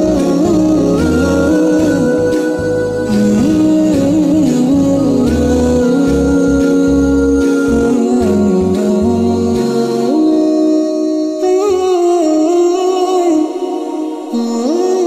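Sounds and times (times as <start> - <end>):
low pulsing beat: 0.0 - 10.2
vocal melody with humming: 0.0 - 15.0.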